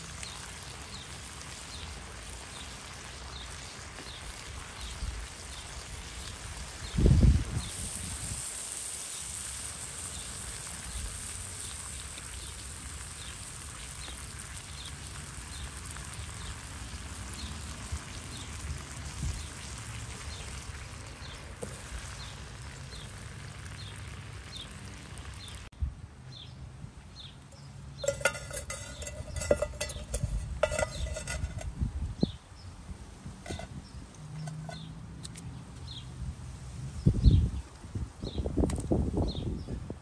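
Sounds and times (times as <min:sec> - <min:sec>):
chicken sizzling in frying pan: 0:00.0 - 0:25.7
metal pot clanking: 0:28.0 - 0:31.7, 0:33.4 - 0:33.8, 0:34.4 - 0:34.9.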